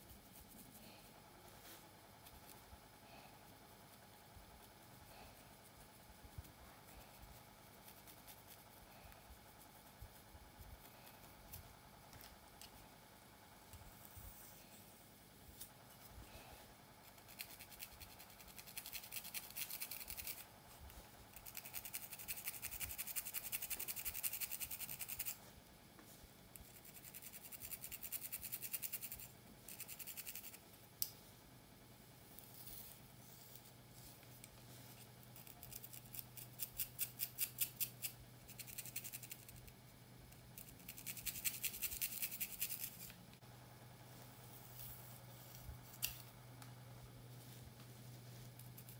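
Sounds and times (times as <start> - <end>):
comb scratching through hair: 3.9 - 12.9, 17.0 - 20.5, 21.3 - 25.4, 26.6 - 30.7, 32.3 - 39.7, 40.6 - 43.2.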